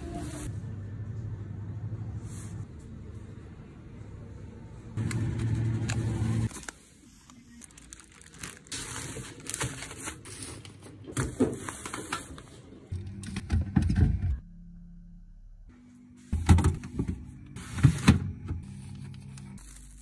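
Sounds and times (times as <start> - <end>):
plastic bags rustling and crinkling: 6.5 - 12.6.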